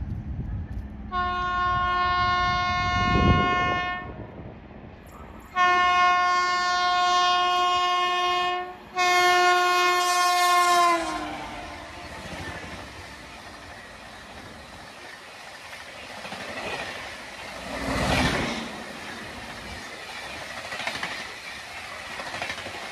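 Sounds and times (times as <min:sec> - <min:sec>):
train rushing by: 0:00.0 - 0:22.9
train horn blasts: 0:01.1 - 0:04.2, 0:05.5 - 0:12.3.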